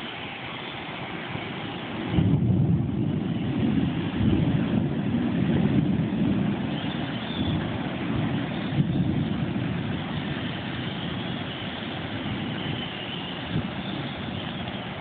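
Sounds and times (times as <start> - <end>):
wind gusting on microphone: 0.0 - 15.0.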